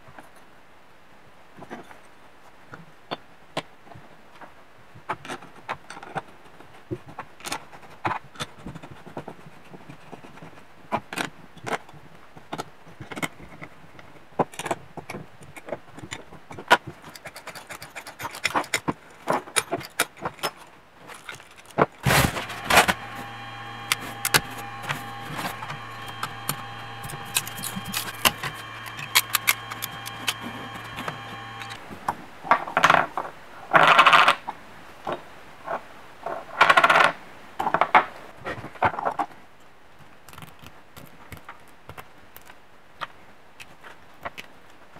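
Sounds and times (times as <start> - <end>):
plastic parts scraping: 5.2 - 31.8
stepper motors whining: 22.0 - 31.8
small metal parts clicking: 27.0 - 31.8.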